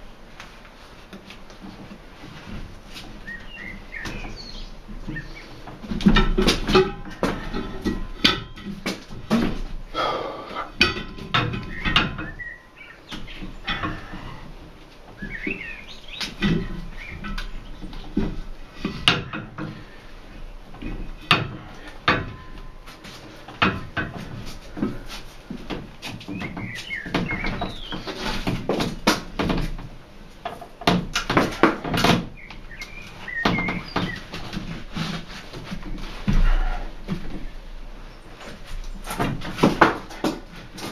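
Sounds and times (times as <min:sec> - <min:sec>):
metal bar clanking on rim: 0:05.9 - 0:08.8, 0:10.6 - 0:14.4, 0:20.8 - 0:25.0.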